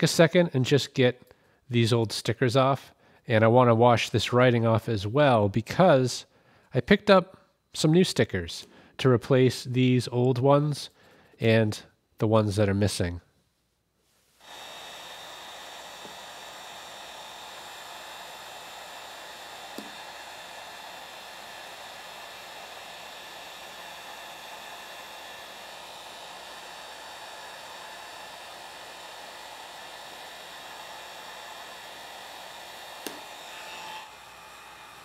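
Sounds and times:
heat gun blowing hiss: 14.3 - 35.0.

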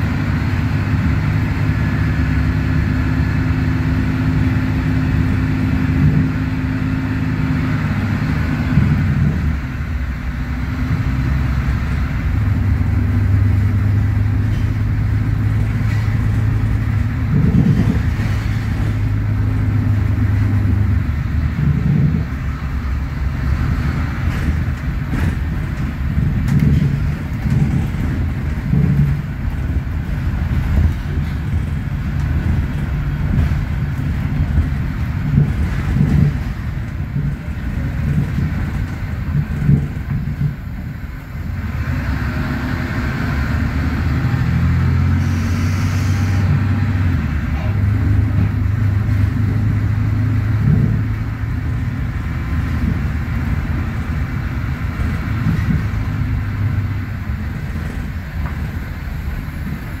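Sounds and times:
bus body knocks and rattles: 0.0 - 42.6, 46.4 - 60.0
bus diesel engine rumble: 0.0 - 60.0.

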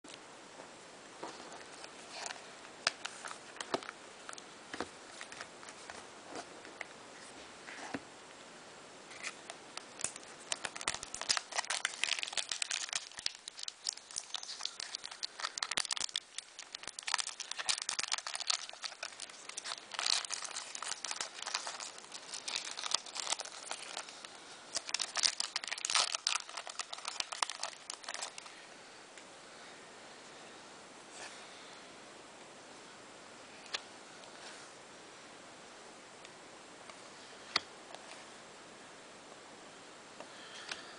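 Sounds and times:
plastic wrapper crinkling and tearing: 9.1 - 28.5.

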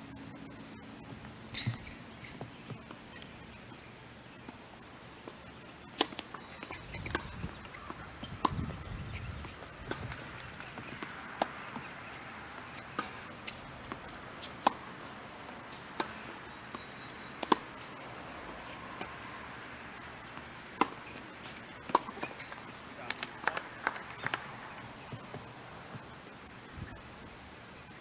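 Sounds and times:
tennis ball being struck: 12.8 - 14.9, 17.4 - 17.7, 21.9 - 22.4.

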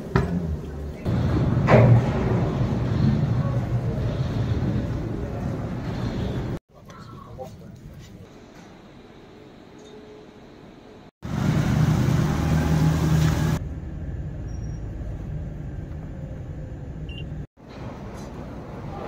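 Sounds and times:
diesel engine humming: 11.2 - 17.4.

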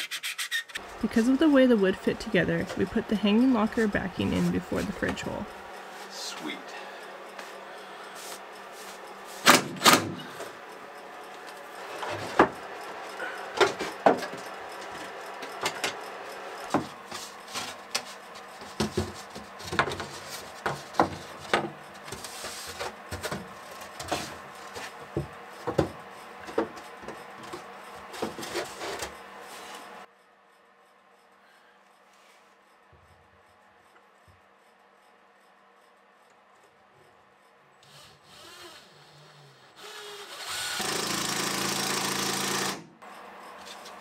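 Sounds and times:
wood scraping on wood: 16.7 - 29.9.

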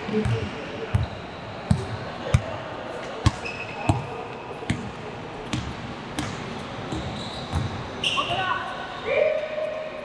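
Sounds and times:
shoe squeak: 3.3 - 4.0, 6.5 - 8.5
basketball bouncing on hard floor: 5.5 - 7.8.

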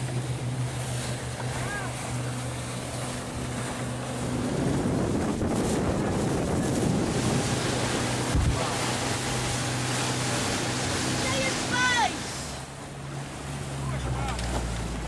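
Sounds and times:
motorboat engine humming: 0.0 - 15.0
water rushing against hull: 0.0 - 15.0
wind on microphone: 3.6 - 9.7.

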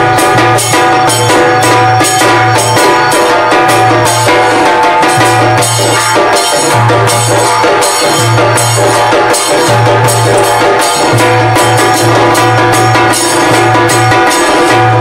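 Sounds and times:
drum and percussion beat: 0.0 - 15.0.

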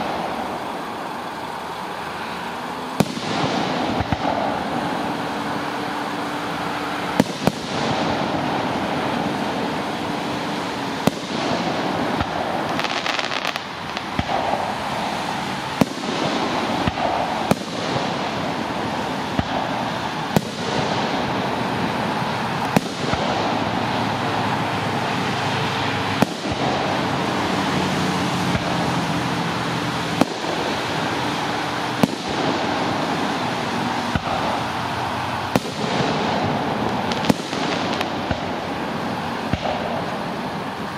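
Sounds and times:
fireworks bursting: 0.0 - 40.9
rushing background noise: 0.0 - 40.9.

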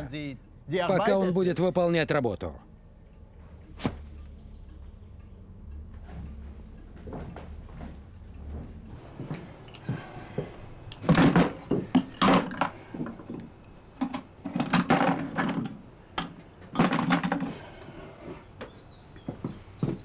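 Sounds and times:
wooden knocks and clatter: 5.9 - 17.6.

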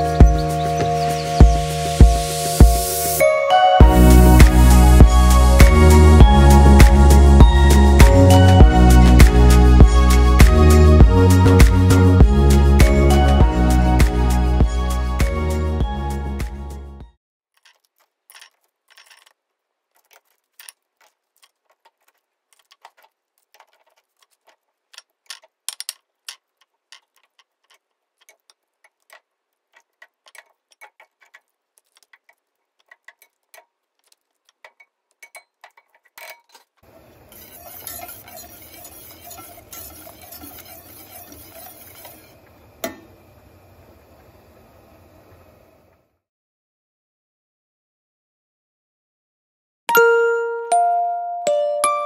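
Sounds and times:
sauce sizzling in a saucepan: 37.3 - 42.4.

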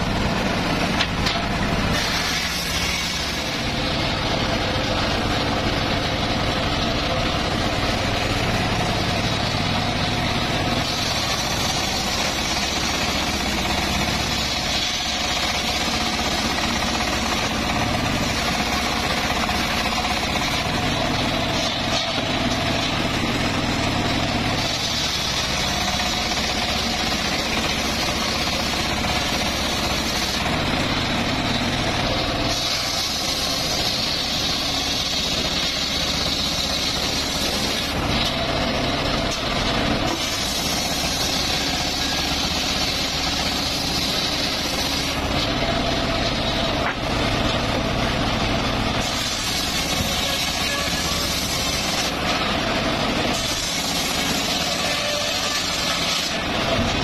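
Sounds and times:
circular saw ripping logs: 0.0 - 57.0.

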